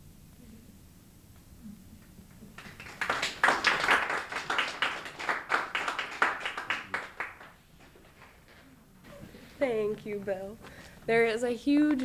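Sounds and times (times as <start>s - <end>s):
small audience applauding: 2.4s - 8.8s.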